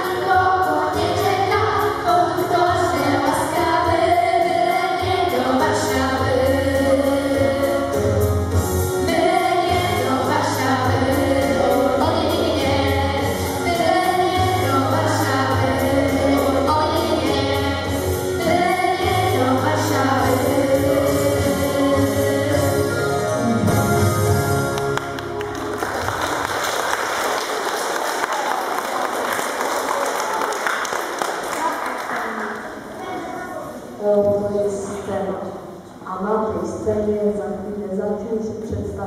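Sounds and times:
girls singing together: 0.0 - 8.2, 9.0 - 23.0.

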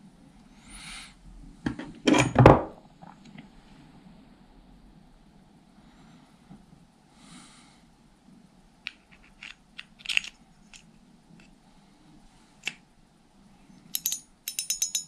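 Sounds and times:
clicks and taps of reel parts: 13.9 - 15.0.

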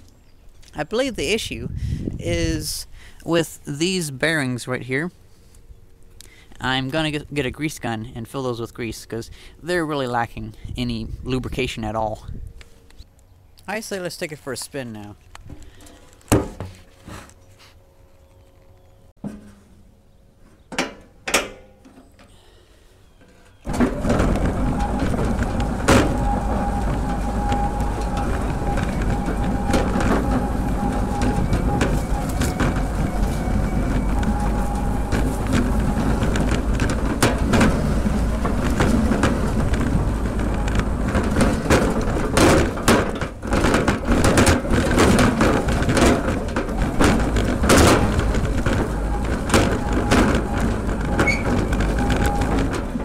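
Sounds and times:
lawn tractor rumbling and rattling: 0.6 - 4.7, 23.1 - 53.0
knocks and clatters: 23.2 - 53.0.

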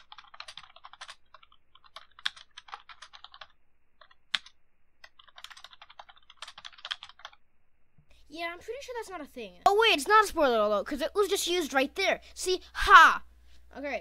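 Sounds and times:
tinny keyboard typing: 0.0 - 7.4.

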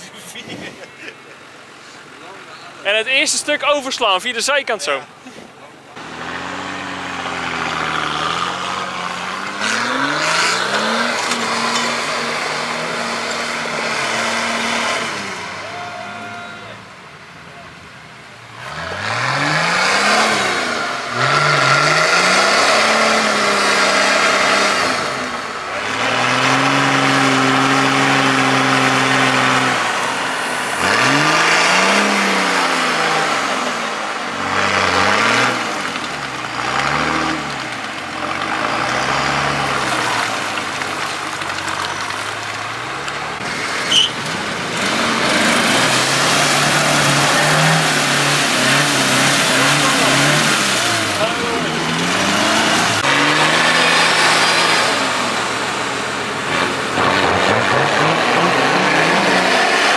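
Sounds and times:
buggy engine revving: 0.0 - 59.9
wheels spinning in mud: 18.5 - 59.9.

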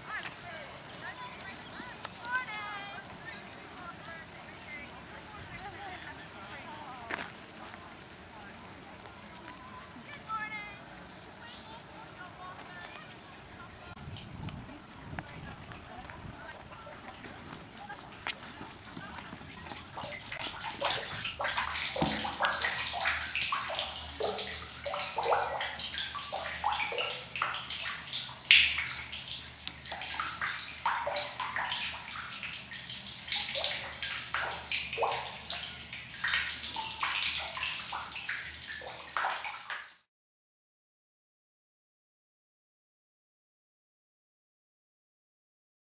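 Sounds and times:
water pouring into stone basin: 17.7 - 40.1.

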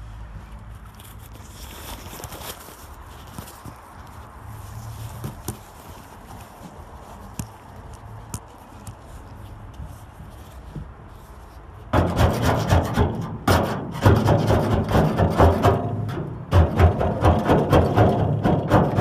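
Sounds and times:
scraper rasping on metal panel: 11.9 - 19.0.

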